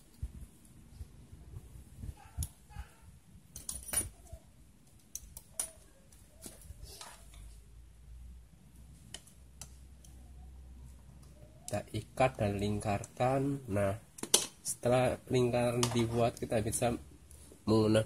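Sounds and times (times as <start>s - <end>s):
pliers and cable clicking: 3.5s - 7.4s.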